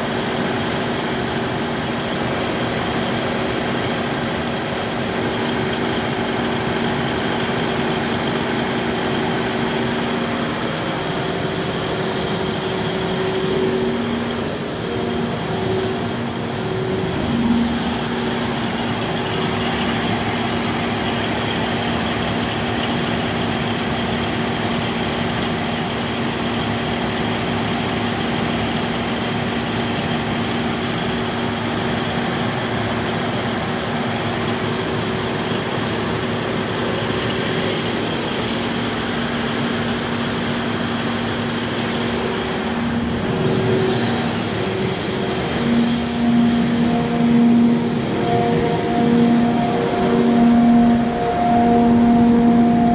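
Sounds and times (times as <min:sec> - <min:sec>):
diesel generator engine drone: 0:00.0 - 0:52.9.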